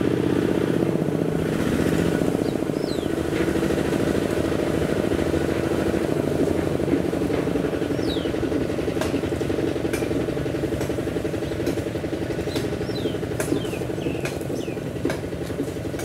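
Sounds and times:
diesel tractor engine chugging: 0:00.0 - 0:16.0.

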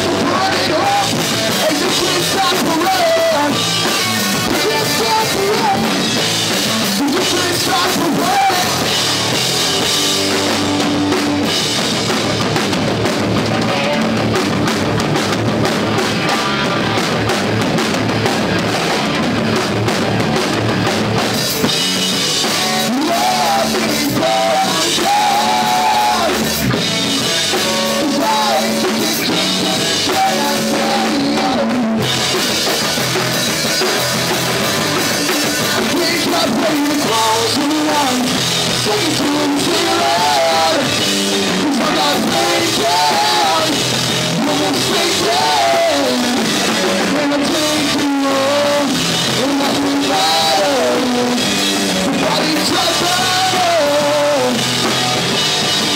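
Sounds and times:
person singing: 0:00.0 - 0:09.2, 0:22.3 - 0:32.1, 0:34.8 - 0:55.2
live rock band playing: 0:00.0 - 0:55.9.

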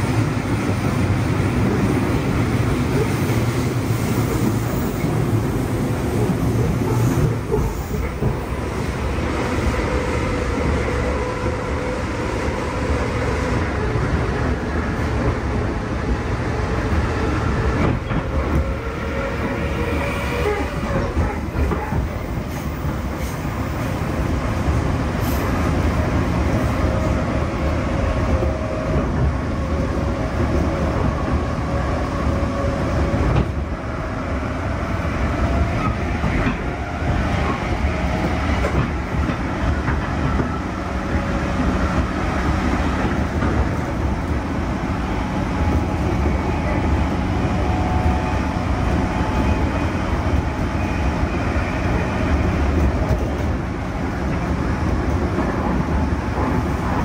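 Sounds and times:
train wheels rumbling on track: 0:00.0 - 0:57.0
rail joint clicks: 0:17.6 - 0:24.1, 0:32.6 - 0:33.7, 0:35.4 - 0:44.5, 0:45.6 - 0:57.0.

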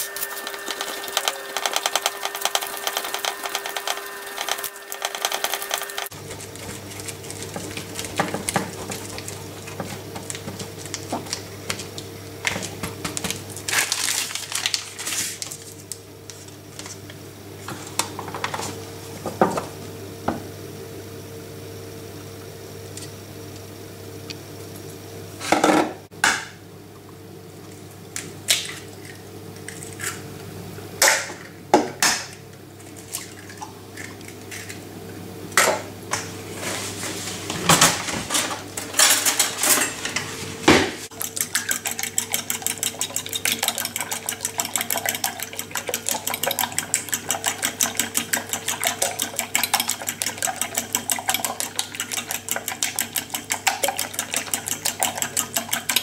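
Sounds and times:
fork beating eggs in glass bowl: 0:00.3 - 0:11.9, 0:41.1 - 0:56.0.

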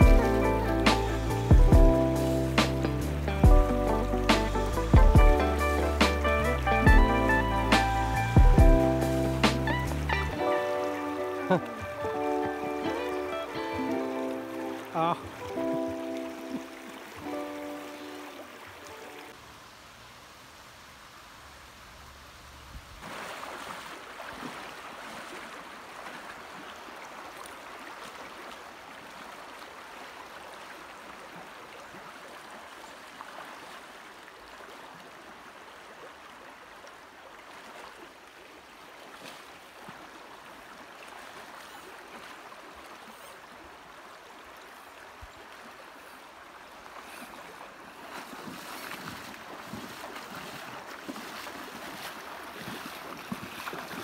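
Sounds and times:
river rushing over rocks: 0:04.6 - 0:34.5.

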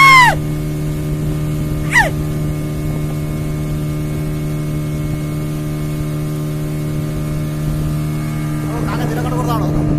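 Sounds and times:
person yelling: 0:00.0 - 0:00.4, 0:01.9 - 0:02.2
outboard motor droning: 0:00.0 - 0:09.9
water and wind noise: 0:00.0 - 0:09.9.

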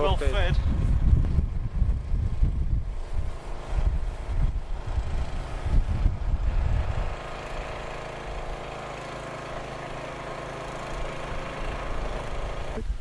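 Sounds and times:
wind buffeting microphone: 0:00.0 - 0:08.7
engine idling: 0:02.7 - 0:13.0.

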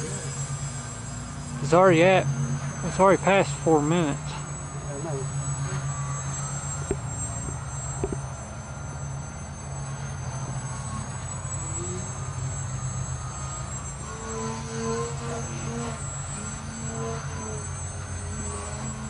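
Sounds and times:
model plane motor buzzing overhead: 0:00.0 - 0:19.0.

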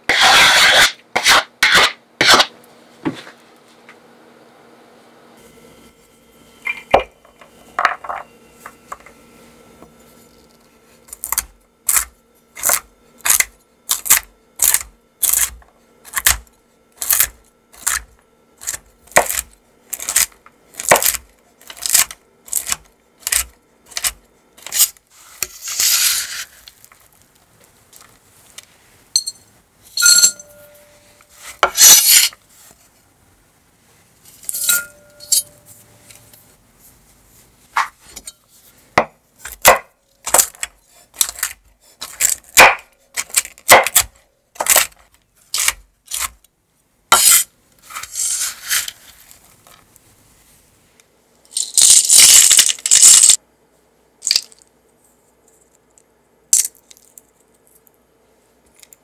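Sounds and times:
knife blade scraping board: 0:00.0 - 0:02.6, 0:18.6 - 0:26.6, 0:31.4 - 0:32.4, 0:47.1 - 0:49.0
glass bowl clinking: 0:29.2 - 0:31.0, 0:34.5 - 0:35.6
knife chopping on cutting board: 0:39.0 - 0:40.6, 0:43.7 - 0:44.8.

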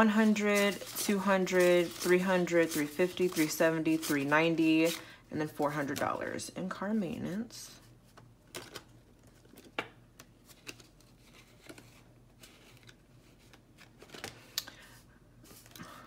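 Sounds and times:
binder pages turning: 0:00.0 - 0:05.0, 0:08.1 - 0:14.6
paper banknotes rustling: 0:00.0 - 0:06.1.

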